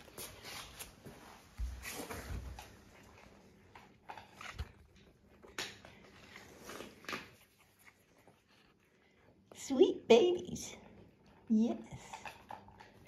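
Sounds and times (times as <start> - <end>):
soft knocks and scuffs: 0.0 - 3.3.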